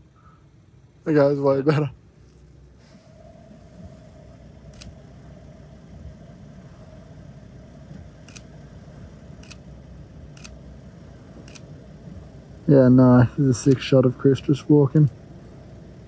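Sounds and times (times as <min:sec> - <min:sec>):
steady low rumble: 0:00.0 - 0:16.0
camera shutter clicks: 0:04.7 - 0:04.9, 0:08.2 - 0:08.5, 0:09.4 - 0:09.6, 0:10.3 - 0:10.6, 0:11.4 - 0:11.7.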